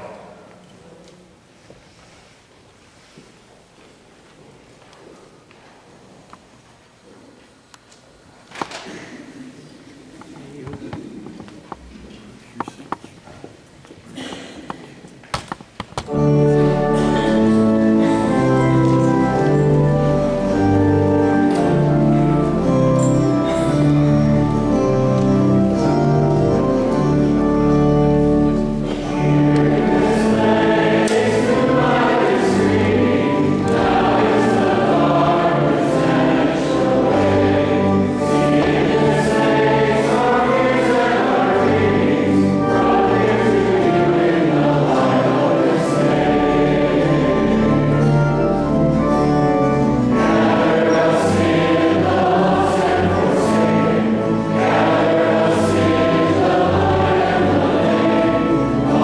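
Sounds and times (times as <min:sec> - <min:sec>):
sustained accompaniment: 0:16.0 - 0:59.0
choir singing a hymn: 0:16.1 - 0:59.0.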